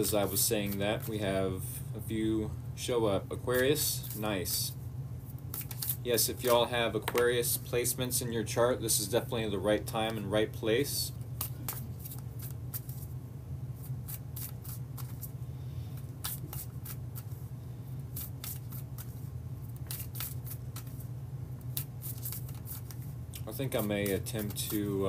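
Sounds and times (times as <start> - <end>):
cards being shuffled: 0.0 - 1.4, 3.6 - 4.6, 5.4 - 7.6, 11.4 - 13.1, 13.8 - 15.4, 16.0 - 17.4, 18.1 - 25.0
steady low hum: 0.0 - 25.0.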